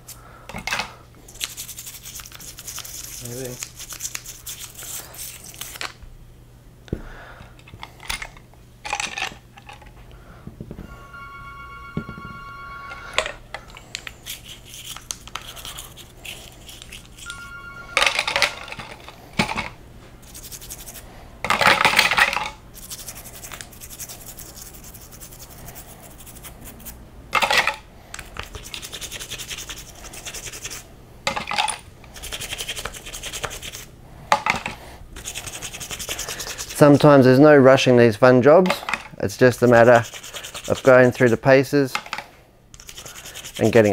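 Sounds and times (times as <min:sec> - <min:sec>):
toothbrush scrubbing metal: 0:01.3 - 0:05.8, 0:14.1 - 0:17.3, 0:20.2 - 0:21.1, 0:22.7 - 0:27.0, 0:28.3 - 0:30.8, 0:32.1 - 0:33.9, 0:35.2 - 0:37.0, 0:39.5 - 0:41.5, 0:42.8 - 0:43.9.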